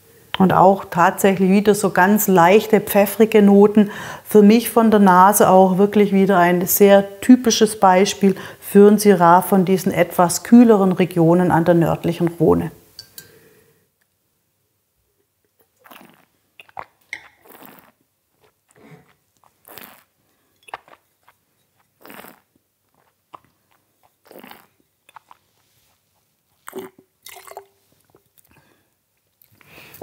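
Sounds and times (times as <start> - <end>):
spitting into spittoon: 15.7 - 27.6
wine slurping and swishing: 15.7 - 28.3.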